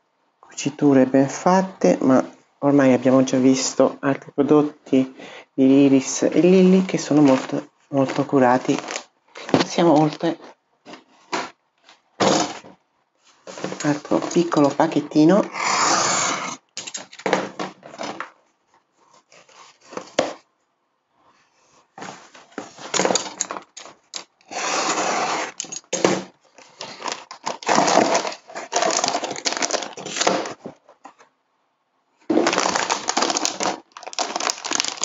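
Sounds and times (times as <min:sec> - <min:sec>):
plastic bag crinkling: 0:06.3 - 0:10.5, 0:13.5 - 0:15.0, 0:22.8 - 0:24.9, 0:25.5 - 0:31.2, 0:32.3 - 0:35.0
paper envelope tearing: 0:07.2 - 0:10.3, 0:22.9 - 0:30.6, 0:32.3 - 0:35.0
box cutter slitting paper: 0:22.8 - 0:30.7, 0:32.3 - 0:35.0.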